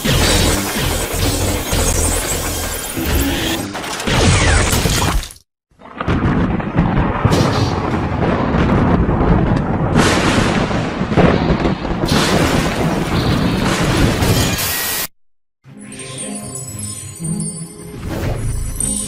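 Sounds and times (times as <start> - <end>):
crackling electrical bolts: 0.0 - 5.3
thunder booms: 5.8 - 14.4.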